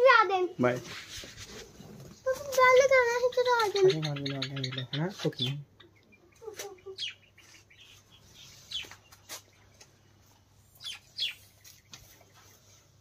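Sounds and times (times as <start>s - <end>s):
small birds chirping: 0.5s - 13.0s.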